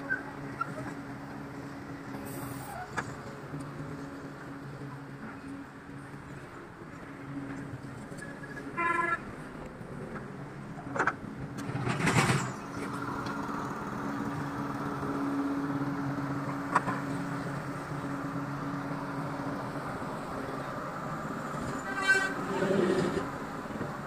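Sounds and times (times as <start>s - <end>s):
crane diesel engine running: 12.5s - 24.0s.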